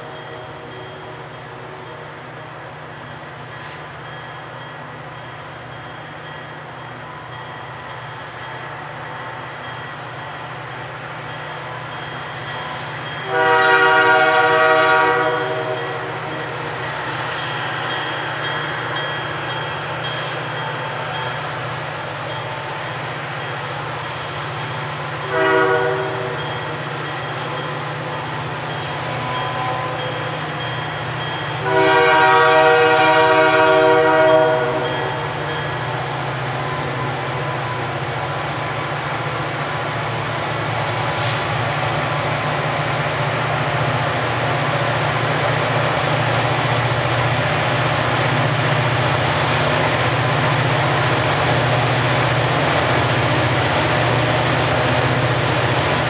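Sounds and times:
diesel locomotive engine drone: 0:00.0 - 0:56.0
locomotive air horn blasts: 0:13.2 - 0:16.6, 0:25.2 - 0:26.4, 0:31.6 - 0:35.2.

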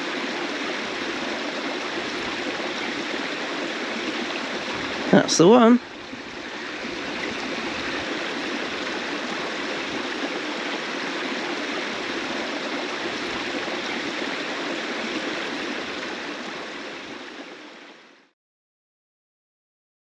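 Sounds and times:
stream running: 0:00.0 - 0:18.3.

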